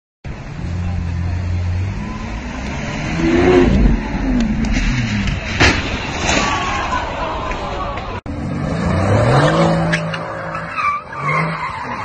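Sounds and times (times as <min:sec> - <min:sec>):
car engine revving: 0:00.3 - 0:05.6, 0:08.3 - 0:12.0
sharp crack: 0:03.6 - 0:08.2.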